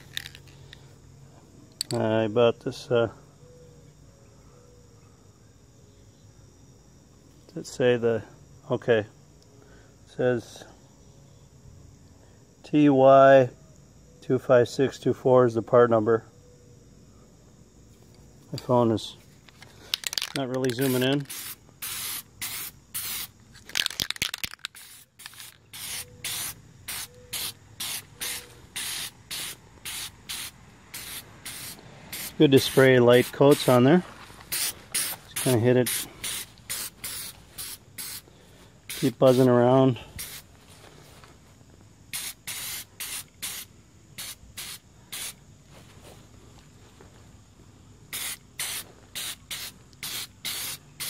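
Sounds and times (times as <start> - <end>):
spray paint can hissing: 0.0 - 0.4, 19.9 - 33.8, 34.4 - 38.2, 38.9 - 39.5, 40.2 - 40.4, 42.1 - 45.4, 48.1 - 51.0
sharp clicks and rattles: 19.4 - 21.3, 23.6 - 25.6.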